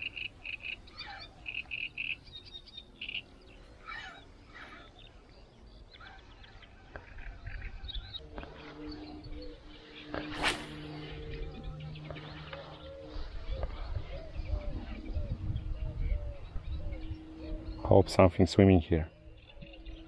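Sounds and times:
frogs calling: 0:00.0 - 0:05.2
birds calling: 0:00.0 - 0:20.0
sharp rushing noise: 0:10.1 - 0:11.3.

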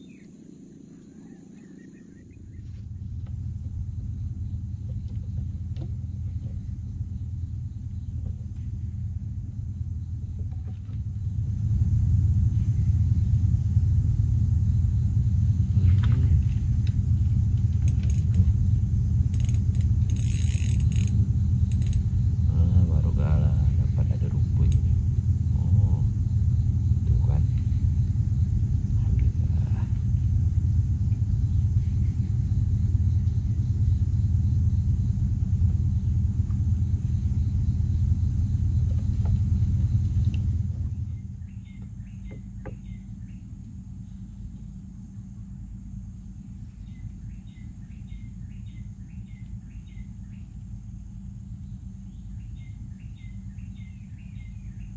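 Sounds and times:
birds chirping: 0:00.0 - 0:03.2, 0:40.9 - 0:44.3, 0:46.7 - 0:50.6, 0:51.6 - 0:54.9
low engine drone: 0:00.0 - 0:54.9
steady low rumble: 0:00.0 - 0:54.9
fishing reel clicking and jingling: 0:17.9 - 0:18.5, 0:19.3 - 0:22.1.

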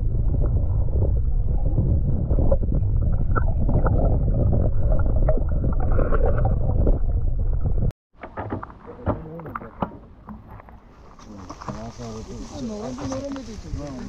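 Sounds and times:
muffled underwater rumble: 0:00.0 - 0:07.9.

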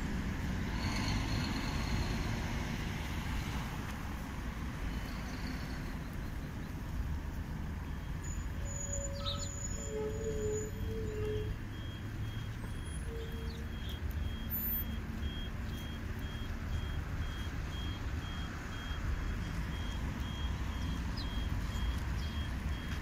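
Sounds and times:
low traffic rumble: 0:00.0 - 0:23.0
reversing alarm beeps: 0:07.8 - 0:23.0.

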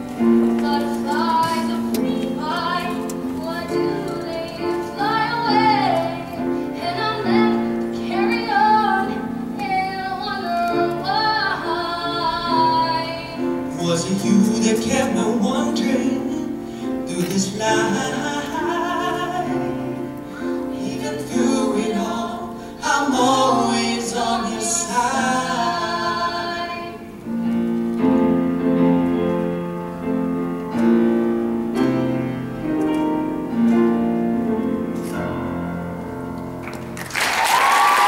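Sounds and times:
grand piano chords: 0:00.0 - 0:37.2
man and woman singing duet: 0:00.6 - 0:27.1
audience applause and cheering: 0:36.6 - 0:38.0.

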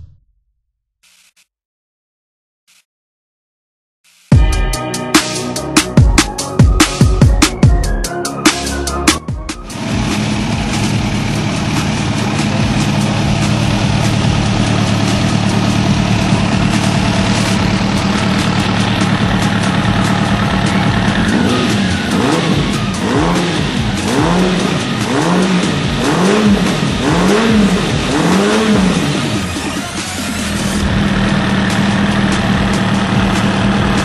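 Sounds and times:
engine throttle blips: 0:09.1 - 0:34.0
motorcycle engine idling: 0:09.7 - 0:34.0.

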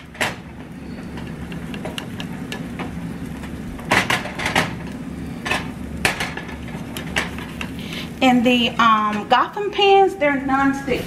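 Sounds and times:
batter sizzling in hot oil: 0:00.0 - 0:11.0
spatula knocking a pan: 0:01.2 - 0:03.0.

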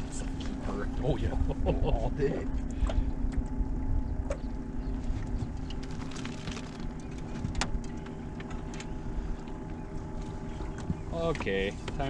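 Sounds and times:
steady low hum: 0:00.0 - 0:12.0
wind rumbling on microphone: 0:00.0 - 0:12.0
clicks and taps handling fish: 0:05.2 - 0:12.0.

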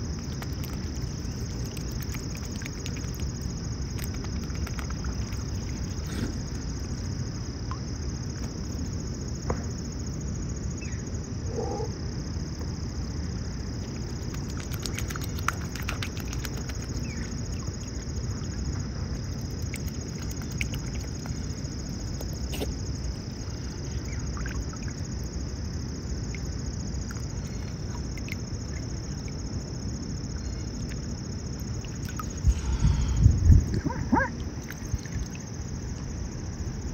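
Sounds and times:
water drips: 0:00.0 - 0:06.1, 0:13.8 - 0:22.5, 0:26.2 - 0:29.5, 0:30.7 - 0:32.5, 0:33.6 - 0:35.6.

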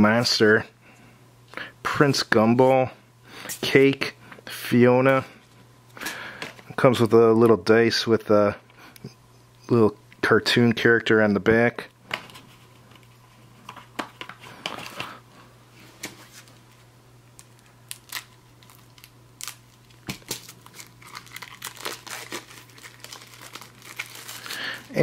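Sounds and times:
plastic wrap crinkling and tearing: 0:17.4 - 0:25.0.

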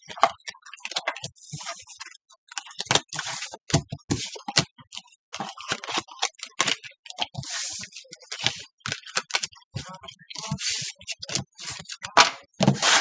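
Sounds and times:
cards slapping and sliding on wood: 0:10.6 - 0:13.0.

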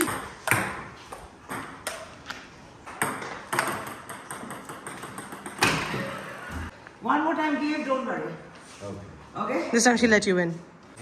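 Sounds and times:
table tennis ball clicking: 0:03.0 - 0:05.8.

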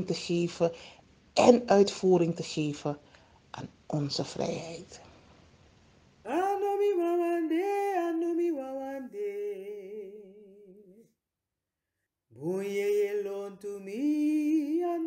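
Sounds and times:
person singing unaccompanied: 0:06.3 - 0:11.1, 0:12.3 - 0:15.0.

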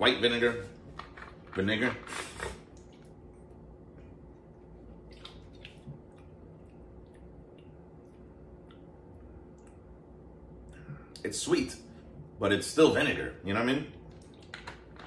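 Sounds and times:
faint steady hum: 0:00.0 - 0:15.0
tongue and lip clicks: 0:05.1 - 0:10.0.

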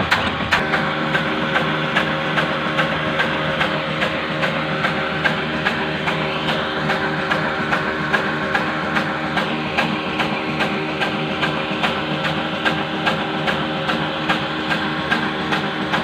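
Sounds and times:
mechanical hum: 0:00.0 - 0:16.0
old engine running steadily: 0:00.0 - 0:16.0.

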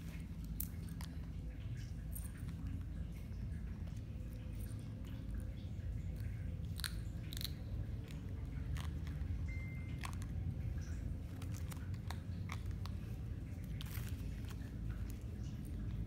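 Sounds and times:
steady low hum: 0:00.0 - 0:16.0
food crunching being chewed: 0:04.3 - 0:16.0.

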